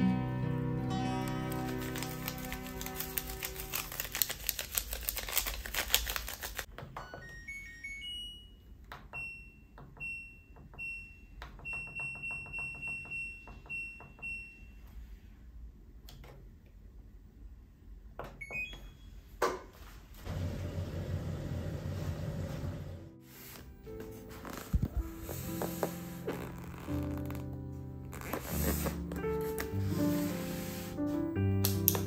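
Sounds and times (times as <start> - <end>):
powder pouring rustle: 1.3 - 6.7.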